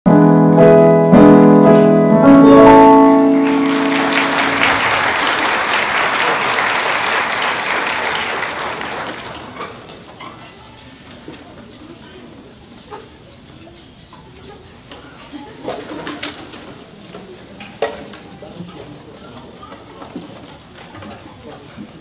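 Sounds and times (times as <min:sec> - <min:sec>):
string orchestra chords: 0:00.1 - 0:06.4
audience applause: 0:03.0 - 0:10.0.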